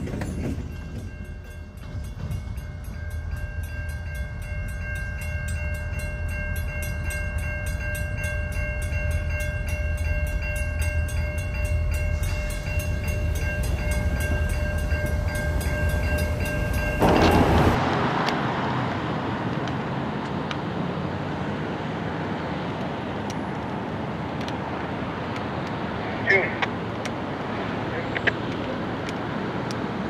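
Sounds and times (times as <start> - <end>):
crossing signal bell ringing: 0.0 - 17.8
diesel locomotives rumbling: 0.0 - 30.0
road traffic hiss: 11.0 - 30.0.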